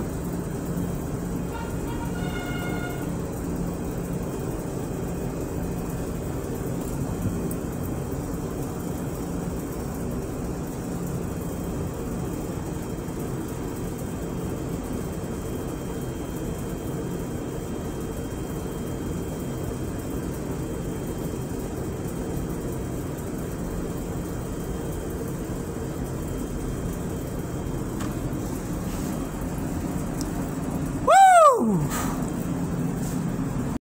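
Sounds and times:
kitchen equipment hum: 0:00.0 - 0:08.4, 0:25.5 - 0:33.8
whooping tone: 0:31.0 - 0:32.2.

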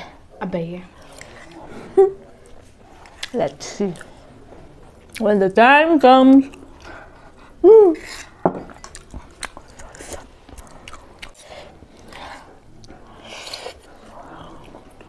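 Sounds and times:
wet chewing of noodles: 0:00.9 - 0:05.4, 0:06.4 - 0:15.0.

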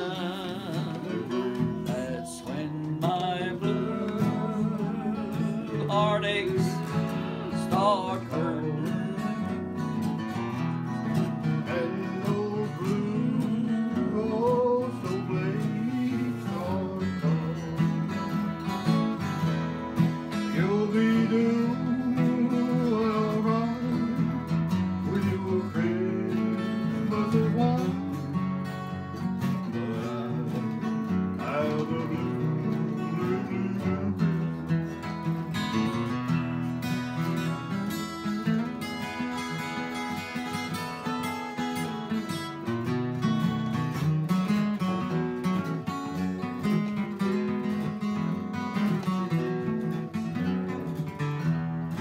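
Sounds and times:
man singing: 0:00.0 - 0:10.6, 0:11.2 - 0:19.0, 0:20.2 - 0:34.8, 0:44.4 - 0:48.1
acoustic guitar strumming: 0:00.0 - 0:52.0.

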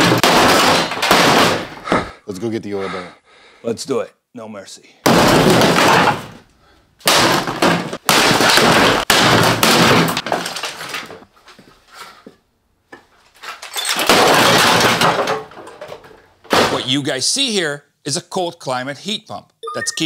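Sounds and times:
metal crashing and clattering: 0:00.0 - 0:01.7, 0:05.1 - 0:06.4, 0:07.1 - 0:11.2, 0:13.4 - 0:16.8.

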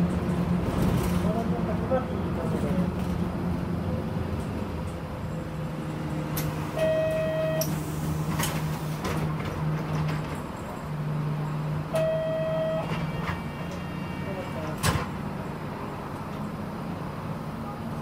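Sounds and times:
bus engine idling: 0:00.0 - 0:18.0
short electronic beeps: 0:06.8 - 0:07.7, 0:12.0 - 0:12.9.

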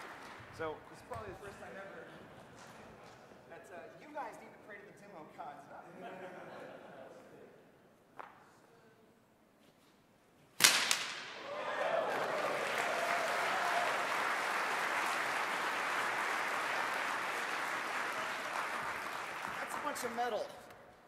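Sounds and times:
audience applauding: 0:00.0 - 0:00.5, 0:11.4 - 0:20.5
whip cracking: 0:10.6 - 0:11.4.

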